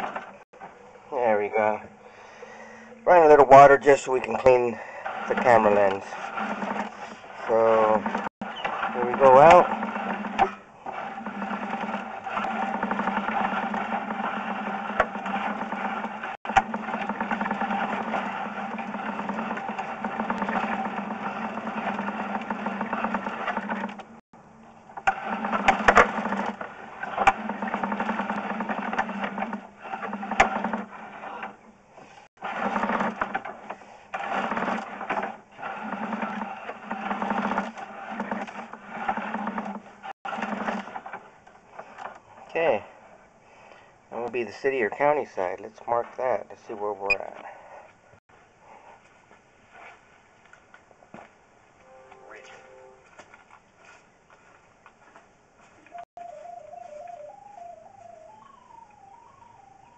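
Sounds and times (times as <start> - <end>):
cable scraping and rattling in pipe: 3.1 - 24.2, 25.0 - 42.7.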